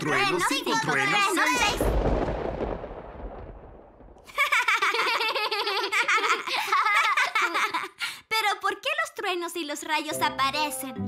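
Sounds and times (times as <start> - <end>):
thunderclap rumbling: 1.5 - 4.8
children giggling and laughing: 4.3 - 8.0.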